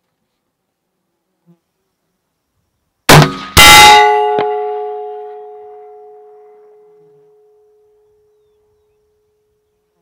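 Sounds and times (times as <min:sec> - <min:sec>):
rifle shot: 0:03.1 - 0:04.9
bullet striking steel plate: 0:03.1 - 0:06.2
steel plate ringing: 0:03.1 - 0:06.9.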